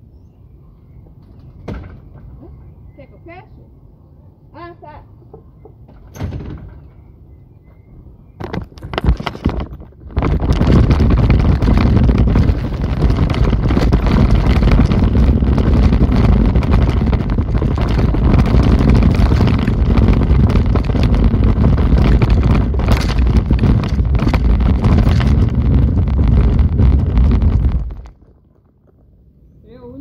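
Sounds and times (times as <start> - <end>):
loud low rumbling: 8.8 - 30.0.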